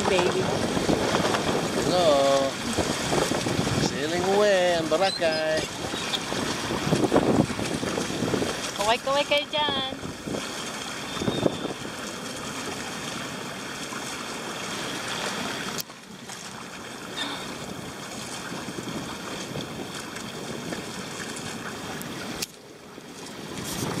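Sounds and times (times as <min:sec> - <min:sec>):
wind buffeting microphone: 0:00.0 - 0:13.6, 0:17.4 - 0:22.4, 0:23.3 - 0:24.0
water rushing past hull: 0:00.0 - 0:24.0.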